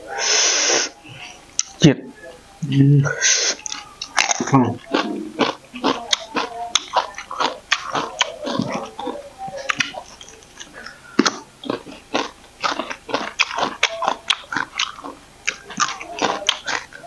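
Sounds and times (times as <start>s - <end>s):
crunching raw vegetables: 3.6s - 17.0s.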